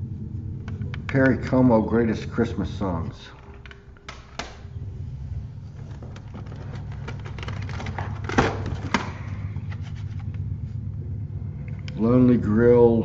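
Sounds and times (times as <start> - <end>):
low hum: 0.0 - 13.0
plastic cases clicking: 3.3 - 4.7, 5.8 - 10.4.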